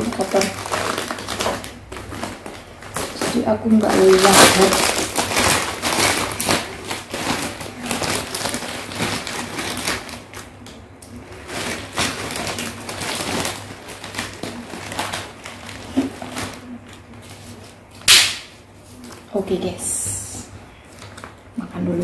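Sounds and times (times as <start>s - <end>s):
plastic bag rustling and crinkling: 0.0s - 19.8s, 20.7s - 22.0s.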